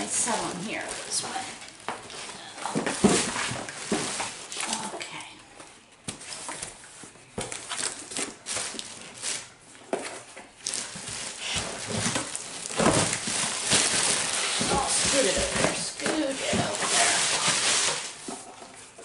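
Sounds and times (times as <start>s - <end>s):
plastic bag liner crinkling: 0.0s - 5.2s, 6.2s - 19.0s
plastic bottles knocking together: 9.9s - 18.7s.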